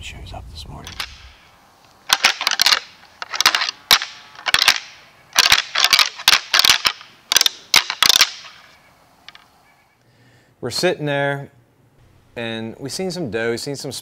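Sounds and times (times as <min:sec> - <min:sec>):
antlers clacking together: 0:00.9 - 0:01.4, 0:02.1 - 0:08.7.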